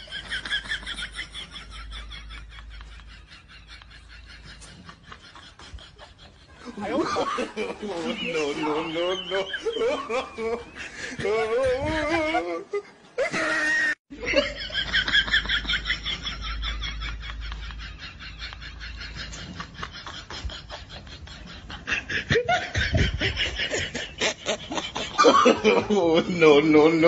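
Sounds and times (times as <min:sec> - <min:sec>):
people laughing: 0:00.0 - 0:27.0.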